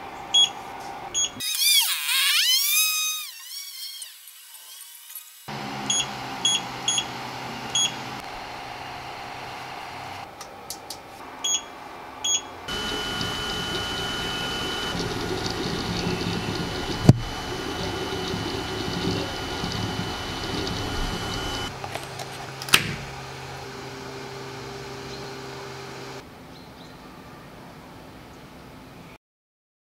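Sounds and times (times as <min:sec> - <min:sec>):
printer motors whining: 0:05.5 - 0:10.3, 0:12.6 - 0:26.2
printer mechanical clatter: 0:12.7 - 0:23.2.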